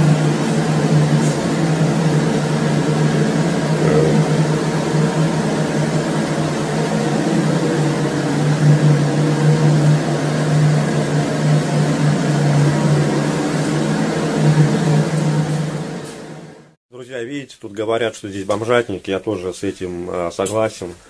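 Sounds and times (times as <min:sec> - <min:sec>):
mechanical hum with hiss: 0:00.0 - 0:16.8.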